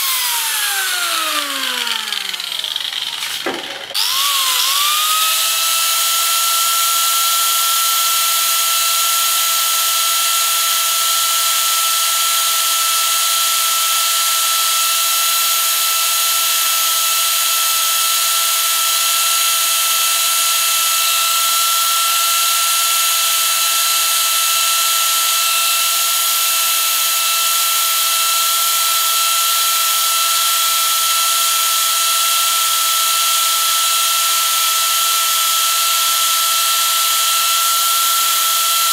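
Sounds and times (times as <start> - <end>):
cutter carving wood: 0.0 - 38.9
power carver whining: 0.0 - 38.9.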